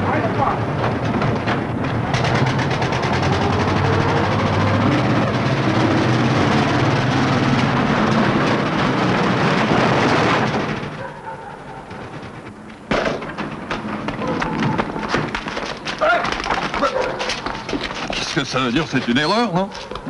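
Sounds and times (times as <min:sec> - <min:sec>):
old car engine chugging: 0:00.0 - 0:20.0
sharp knocks: 0:07.4 - 0:18.2.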